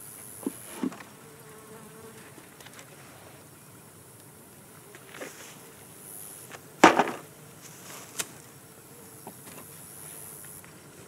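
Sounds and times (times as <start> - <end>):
bees buzzing: 0.0 - 2.7.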